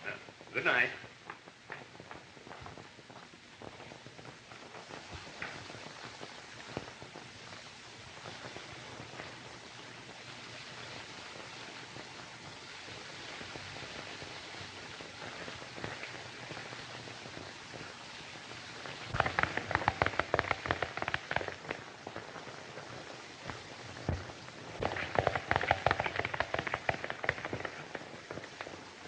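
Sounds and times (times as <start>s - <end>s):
old film soundtrack hiss: 0.0s - 29.0s
horse hoofbeats on dirt: 19.0s - 22.6s, 23.5s - 28.9s.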